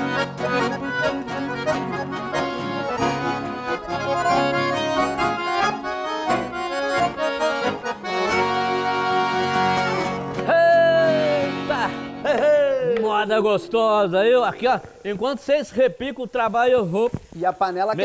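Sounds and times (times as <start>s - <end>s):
accordion playing: 0.0s - 12.5s.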